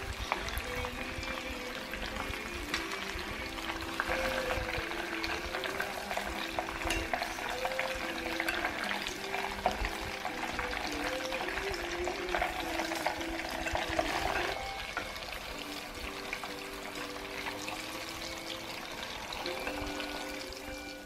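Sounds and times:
food sizzling in a pan: 0:00.0 - 0:21.0
utensil clicking on a pan: 0:00.1 - 0:20.6.

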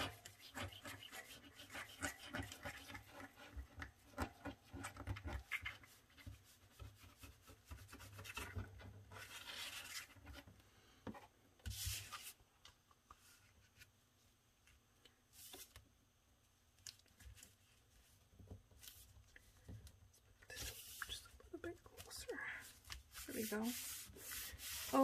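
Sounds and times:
glue bottle tip scratching paper: 0:00.0 - 0:08.5
paper scraping: 0:23.1 - 0:25.0.

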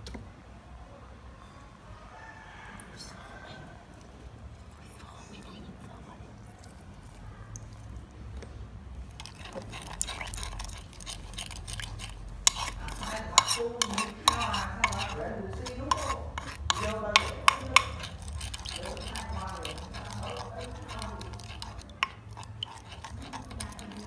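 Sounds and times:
spoon stirring sauce in mortar: 0:06.5 - 0:24.0
spoon clicking on wooden bowl: 0:09.2 - 0:24.0.

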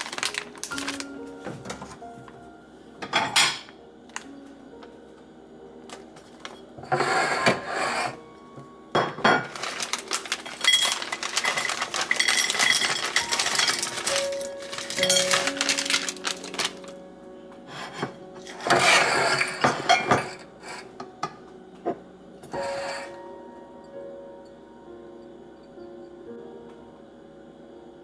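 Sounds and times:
plastic bag crinkling: 0:00.0 - 0:02.0, 0:09.4 - 0:17.1.

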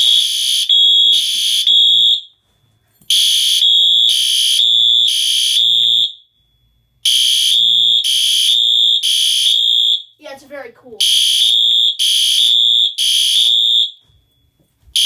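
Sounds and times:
fire alarm horn beeps: 0:00.0 - 0:02.3, 0:03.1 - 0:06.3, 0:07.0 - 0:10.1, 0:11.0 - 0:14.0.

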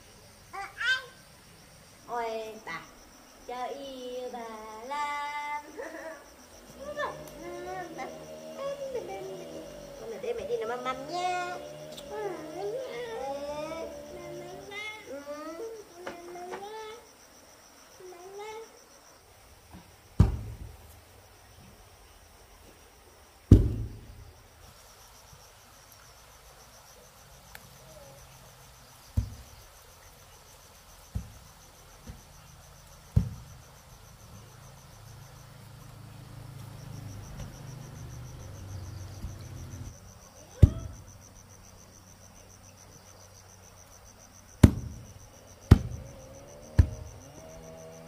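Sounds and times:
crickets trilling: 0:00.0 - 0:48.0
sharp knocks: 0:20.2 - 0:20.8, 0:23.5 - 0:24.1, 0:33.1 - 0:33.4, 0:40.6 - 0:41.0, 0:44.6 - 0:45.1, 0:45.7 - 0:46.0, 0:46.7 - 0:47.1.

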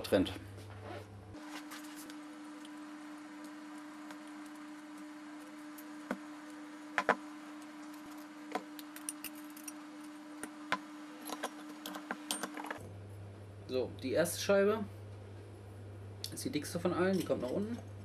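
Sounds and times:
steady low hum: 0:00.0 - 0:18.0
metal clutch parts clinking: 0:17.0 - 0:17.8.

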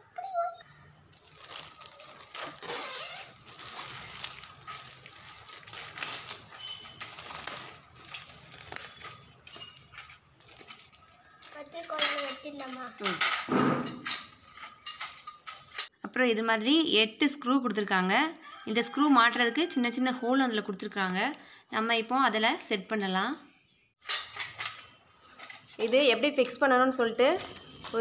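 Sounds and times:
plastic film peeling and crinkling: 0:01.1 - 0:13.3.

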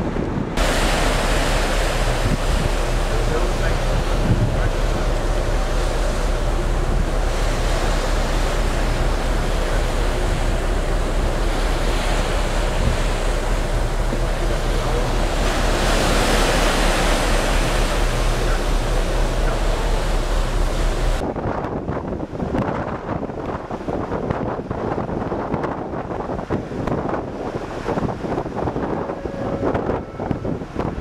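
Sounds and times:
steady low hum: 0:00.0 - 0:21.2
water rushing along ship hull: 0:00.0 - 0:31.0
wind buffeting microphone: 0:00.0 - 0:31.0.

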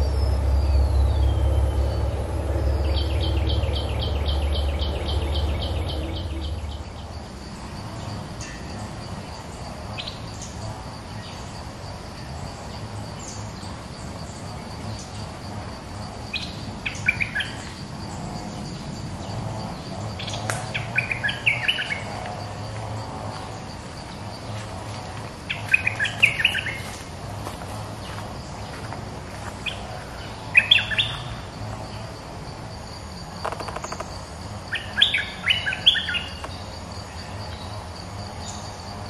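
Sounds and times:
high insect whine: 0:00.0 - 0:39.0.

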